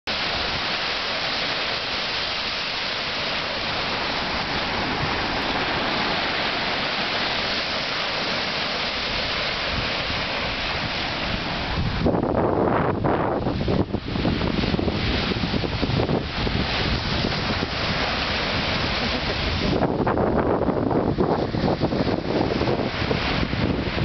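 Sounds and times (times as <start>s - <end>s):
surf breaking on beach: 0.1s - 24.0s
wind buffeting microphone: 0.1s - 24.0s.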